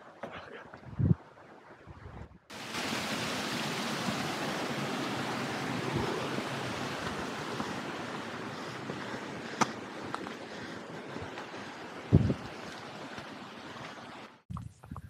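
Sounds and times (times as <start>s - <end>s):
fast-flowing river rushing: 2.5s - 14.4s.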